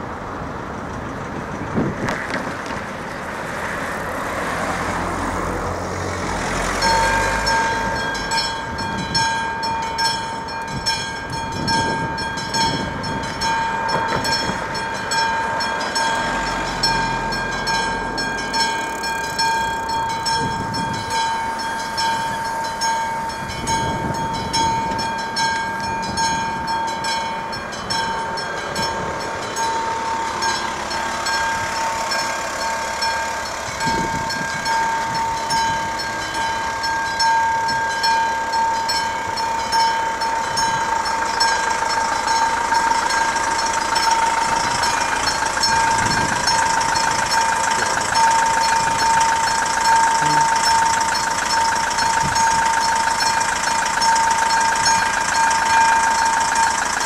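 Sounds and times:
car driving over crossing: 0.0s - 57.0s
level crossing bell ringing: 6.8s - 57.0s.

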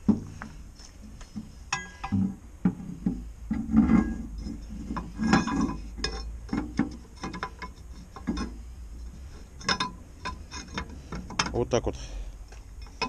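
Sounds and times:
clicks and clinks on steel wheel: 1.7s - 2.3s, 3.6s - 8.6s, 9.6s - 11.8s.

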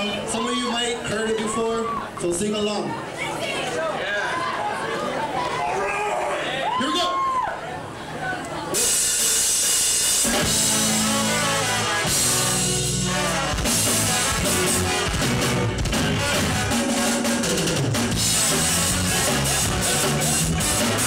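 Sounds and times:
ska-punk band playing live: 8.7s - 21.0s
held horn notes: 10.2s - 17.2s, 18.1s - 21.0s.

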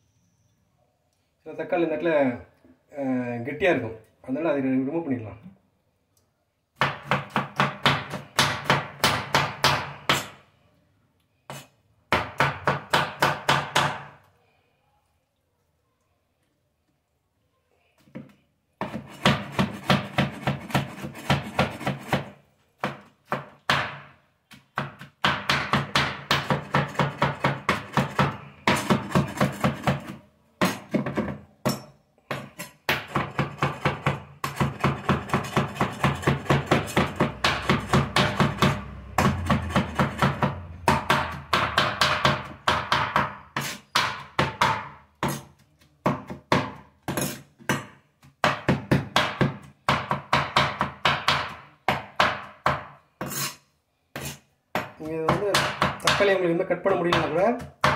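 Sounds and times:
knife chopping on wooden board: 6.8s - 10.4s, 18.2s - 53.6s, 57.0s - 57.9s.

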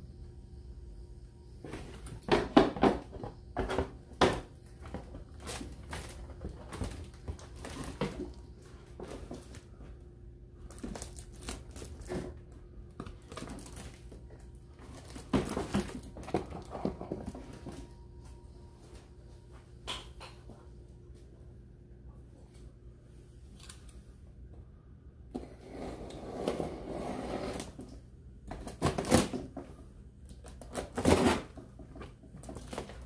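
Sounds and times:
cardboard packaging rustling: 4.6s - 9.8s, 10.6s - 18.0s, 30.3s - 33.0s.

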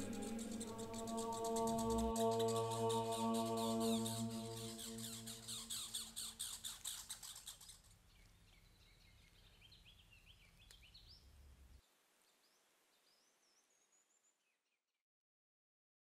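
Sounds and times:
low drone: 0.0s - 5.7s
high rhythmic pulsing: 0.0s - 5.8s
faint bird chirps: 0.0s - 14.9s.

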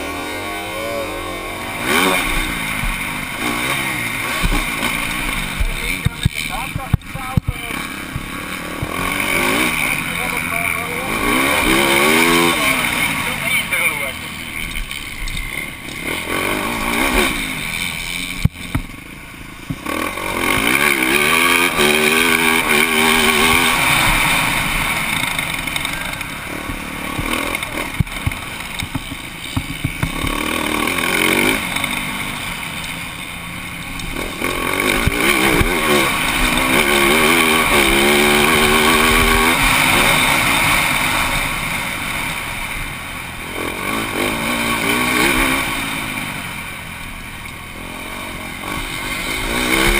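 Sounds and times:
motocross bike engine revving: 0.0s - 49.9s.

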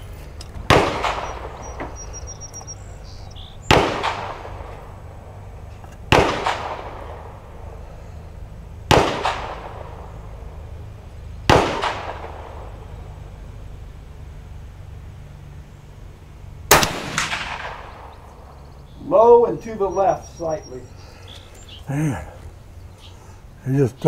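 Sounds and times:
gunshots with echo: 0.6s - 2.2s, 3.6s - 4.8s, 6.1s - 7.4s, 8.9s - 10.2s, 11.5s - 12.9s, 16.7s - 18.3s.

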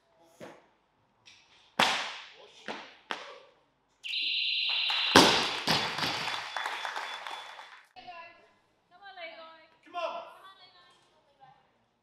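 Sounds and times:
electronic beep: 4.1s - 5.2s.

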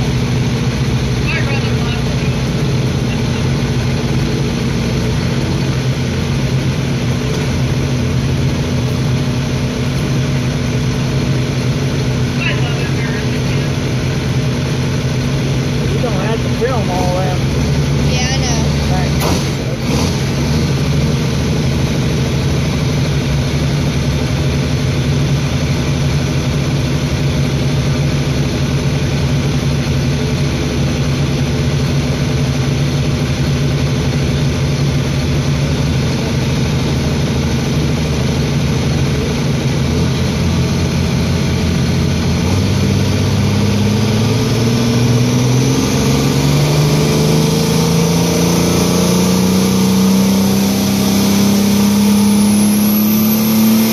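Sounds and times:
tractor engine revving: 0.0s - 53.9s.

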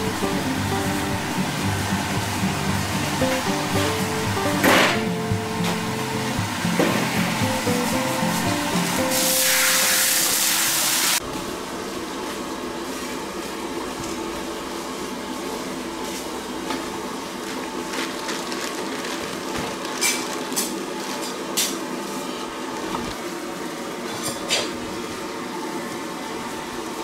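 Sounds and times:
steady background hum: 0.0s - 10.1s.

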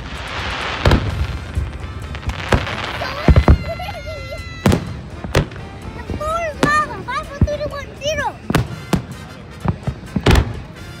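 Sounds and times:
crackling hiss: 0.0s - 6.0s
firework shells bursting: 0.0s - 6.0s.

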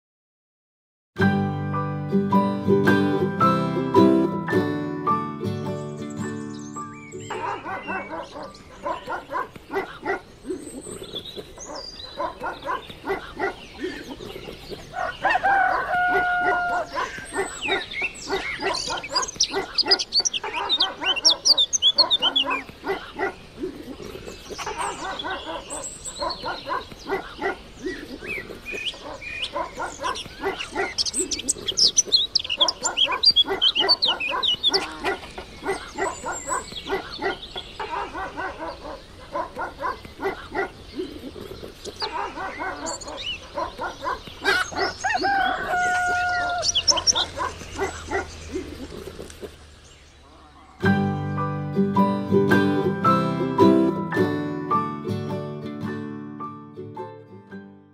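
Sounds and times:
birds chirping: 5.2s - 54.4s
dogs barking: 7.2s - 49.6s.

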